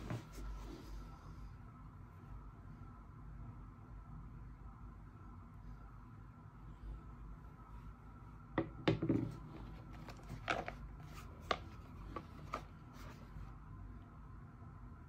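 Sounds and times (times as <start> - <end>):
faint room hum: 0.0 - 15.0
hands handling packaging: 9.6 - 13.4.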